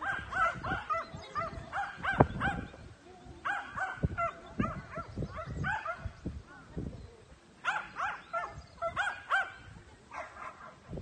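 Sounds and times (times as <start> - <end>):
dog barking in high yaps: 7.6 - 9.6.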